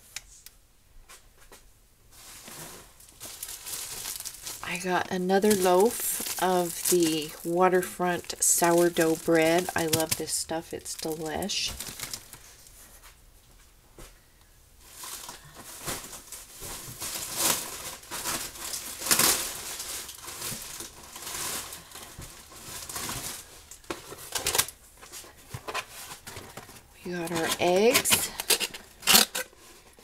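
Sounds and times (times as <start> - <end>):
packaging crinkling: 2.2 - 12.8, 14.8 - 30.0.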